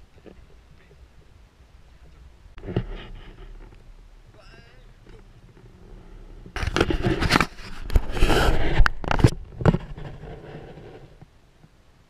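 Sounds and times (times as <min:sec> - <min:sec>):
rubbing on microphone: 0:02.0 - 0:11.3.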